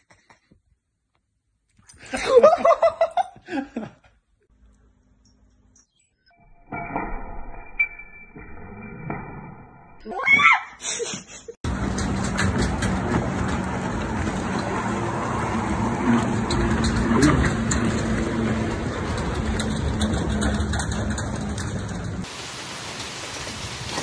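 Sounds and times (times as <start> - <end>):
wind: 11.6 - 24.0
lake water rushing: 22.2 - 24.0.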